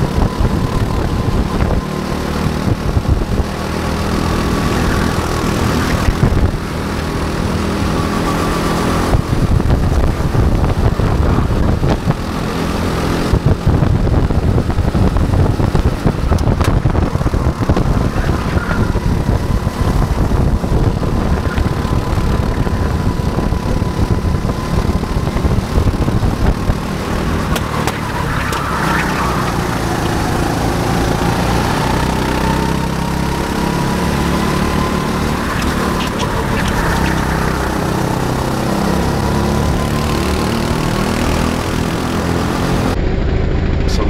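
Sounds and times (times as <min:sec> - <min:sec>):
go-kart engine whining: 0:00.0 - 0:43.8
wind rumble on microphone: 0:00.0 - 0:44.0.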